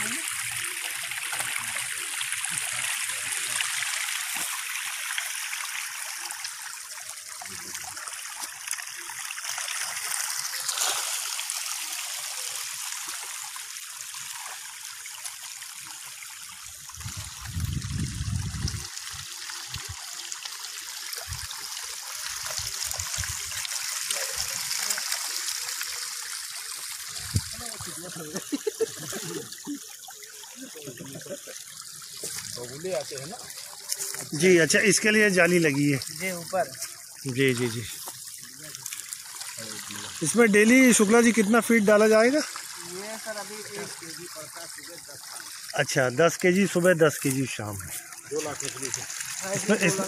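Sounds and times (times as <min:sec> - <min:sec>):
fish splashing in water: 0:07.8 - 0:12.8.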